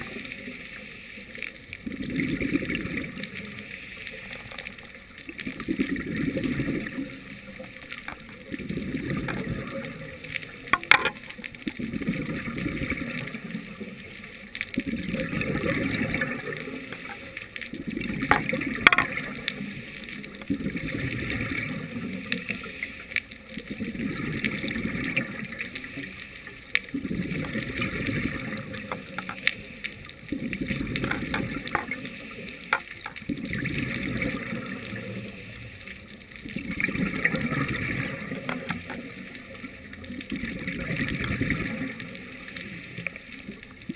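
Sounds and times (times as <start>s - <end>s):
bubbling exhalations: 1.8s - 3.2s, 5.4s - 7.5s, 8.1s - 10.2s, 11.8s - 13.6s, 14.8s - 17.2s, 23.8s - 25.5s, 26.9s - 29.3s, 36.5s - 38.8s.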